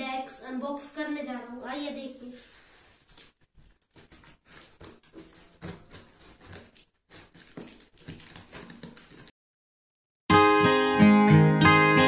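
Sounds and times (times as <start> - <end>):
scissors cutting packing tape: 3.9 - 9.3.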